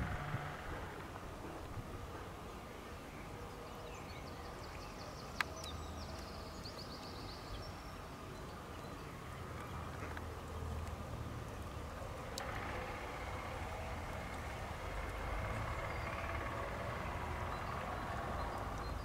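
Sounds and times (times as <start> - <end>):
low hum: 0.0 - 2.6.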